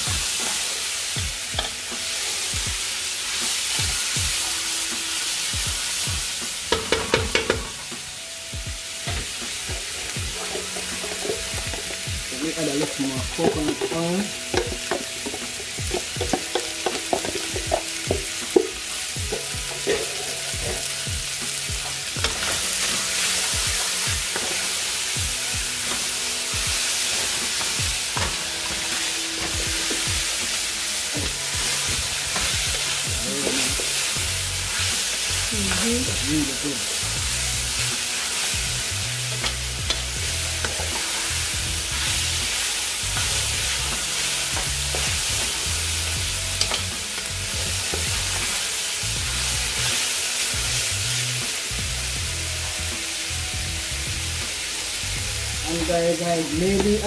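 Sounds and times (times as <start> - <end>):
vegetables sizzling in a pan: 0.0 - 57.0
wooden spoon knocking on pan: 6.7 - 7.8, 13.3 - 20.8.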